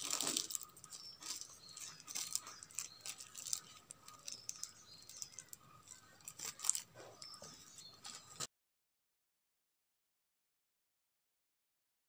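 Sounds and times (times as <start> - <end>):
plastic wrapping crinkling: 0.0 - 8.5.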